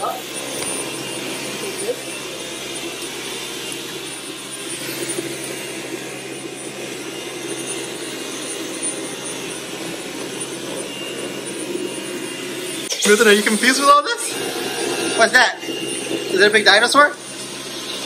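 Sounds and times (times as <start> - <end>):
cordless vacuum running: 0.0 - 18.0.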